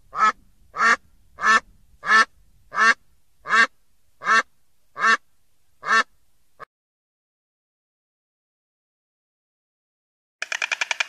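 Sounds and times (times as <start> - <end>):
duck quacking: 0.1 - 5.2, 5.8 - 6.1.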